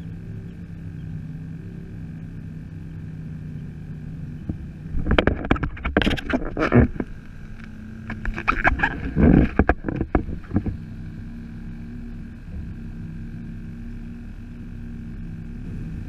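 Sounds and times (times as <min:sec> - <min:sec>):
steady low hum: 0:00.0 - 0:16.0
heavy thump: 0:12.4 - 0:12.9.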